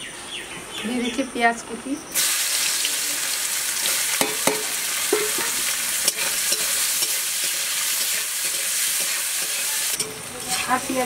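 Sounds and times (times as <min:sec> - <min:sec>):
onion sizzling in oil: 0:02.1 - 0:11.0
spatula scraping a metal pan: 0:04.2 - 0:11.0.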